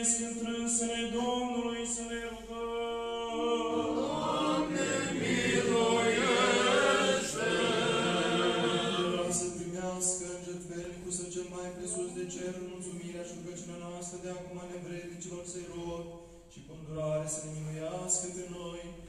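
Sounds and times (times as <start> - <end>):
group chanting liturgical chant: 0.0 - 10.9.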